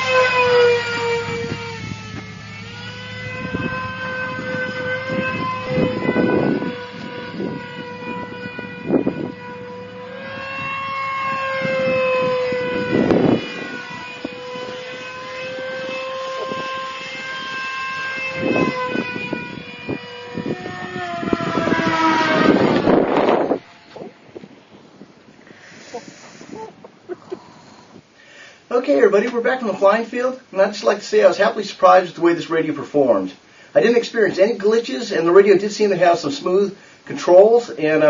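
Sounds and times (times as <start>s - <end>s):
electric jet motor whining: 0.0s - 26.7s.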